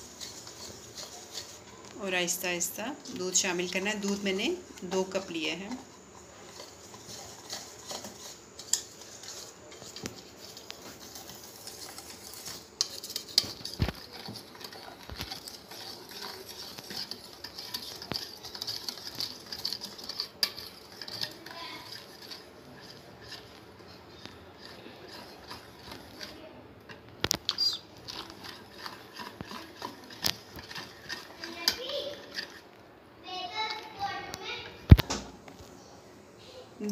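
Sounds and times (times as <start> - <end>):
utensil clinking and scraping bowl: 0.0 - 32.8, 33.4 - 34.7.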